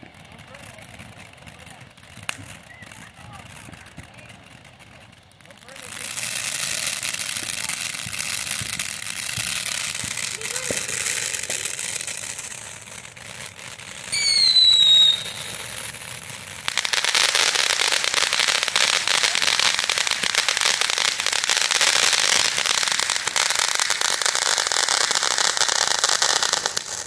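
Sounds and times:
dense crackling hiss: 0.0s - 27.0s
firework fountains hissing: 0.0s - 27.0s
firework whistle: 14.0s - 16.2s.

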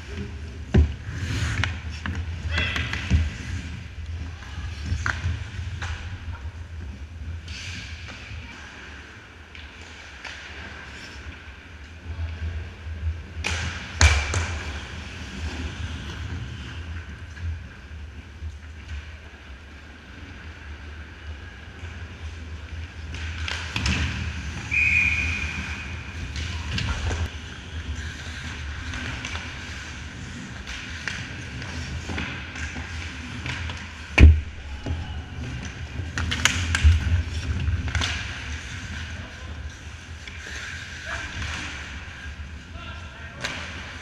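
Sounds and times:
low hum of rink: 0.0s - 44.0s
hockey sticks cracking on puck: 13.3s - 14.7s, 22.8s - 34.4s, 35.4s - 42.2s.

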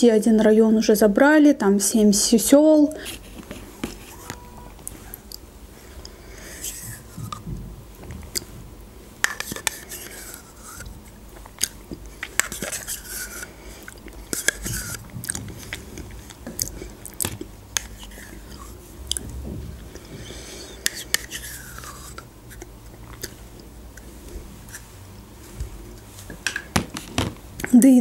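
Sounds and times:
wet mouth and lip noises: 8.2s - 8.5s, 9.3s - 19.4s.

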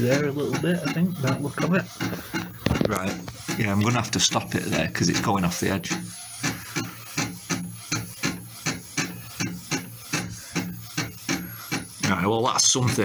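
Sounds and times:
printer carriage whirring: 0.0s - 13.0s.

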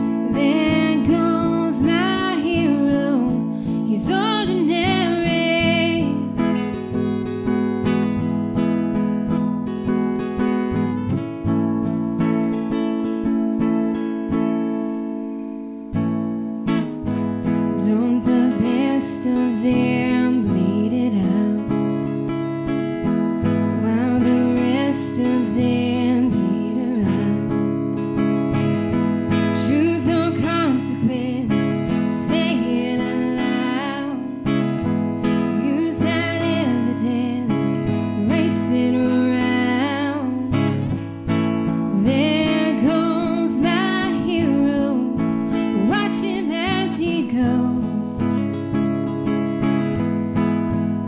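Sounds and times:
person singing: 0.0s - 6.7s, 17.8s - 21.9s, 29.6s - 34.6s, 35.5s - 41.0s, 41.9s - 49.0s
strummed acoustic guitar: 0.0s - 51.0s.

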